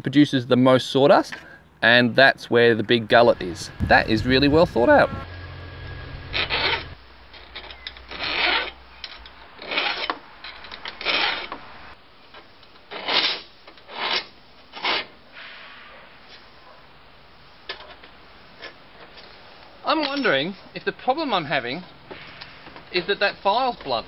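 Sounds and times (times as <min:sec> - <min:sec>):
saw file rasping on saw teeth: 0:06.3 - 0:07.0.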